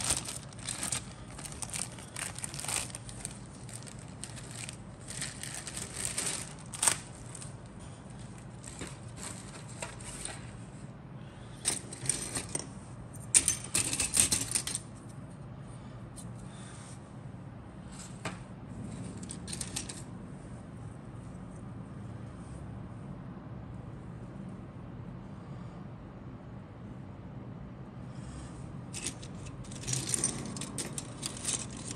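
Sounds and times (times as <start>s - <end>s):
plastic parts clicking and clattering: 0.0s - 7.5s, 8.3s - 10.5s, 11.6s - 12.7s, 13.3s - 14.9s, 19.2s - 20.1s, 28.9s - 31.9s.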